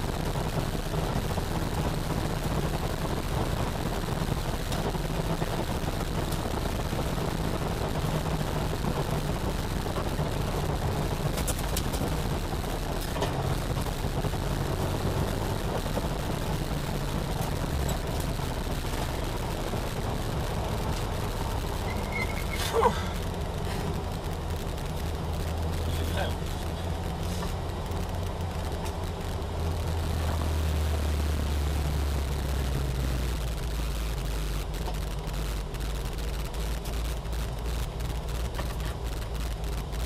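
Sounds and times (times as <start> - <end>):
car engine running hard: 0.0 - 40.0
road and wind noise: 0.0 - 40.0.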